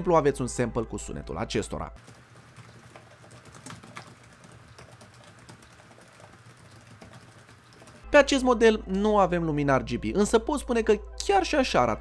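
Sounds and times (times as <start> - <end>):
laptop keyboard typing: 2.0 - 8.1.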